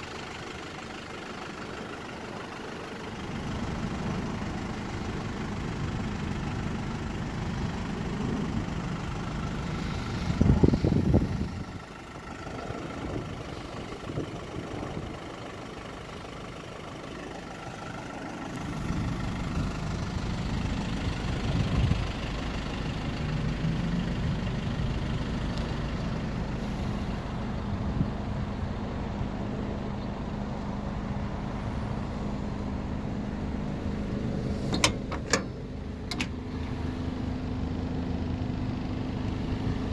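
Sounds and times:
diesel engine idling: 0.0s - 39.9s.

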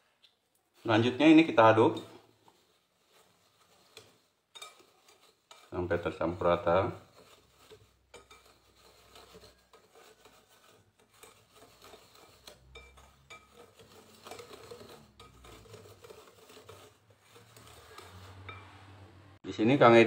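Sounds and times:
whisk scraping in bowl: 0.7s - 20.0s
whisk wires clinking on glass: 4.5s - 5.7s, 8.1s - 10.3s, 11.1s - 18.7s.

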